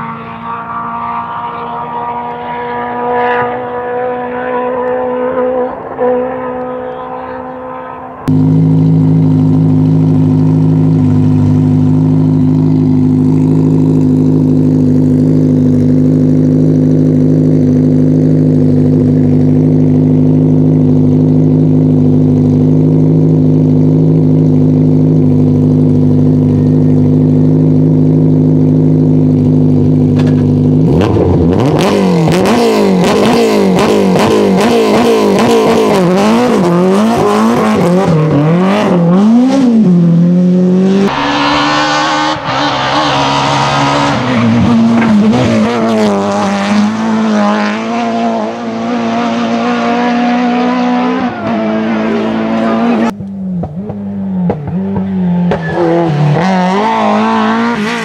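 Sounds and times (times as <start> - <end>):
car engine revving and accelerating: 0.0 - 58.0
car engine idling: 5.7 - 34.6, 51.9 - 58.0.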